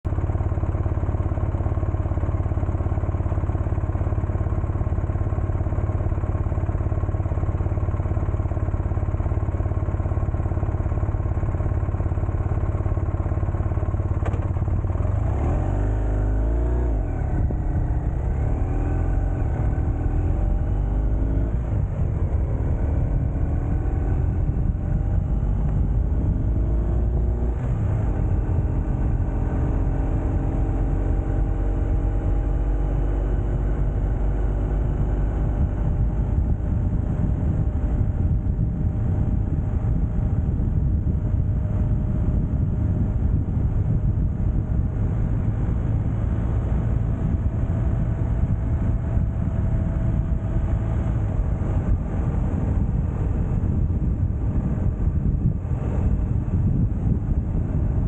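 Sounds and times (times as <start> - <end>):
wind and road noise: 0.0 - 58.0
engine revving: 14.2 - 37.6.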